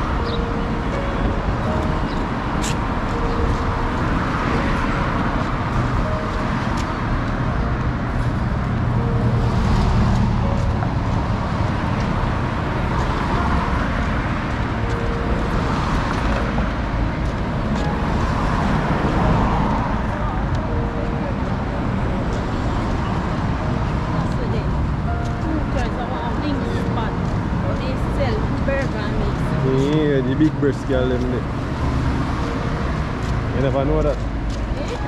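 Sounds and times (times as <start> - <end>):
cars passing: 0.0 - 35.0
heavy vehicle passing: 0.0 - 35.0.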